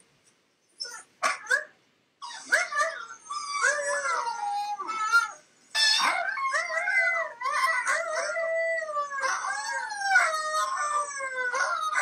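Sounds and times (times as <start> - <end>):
husky howling: 6.0 - 12.0.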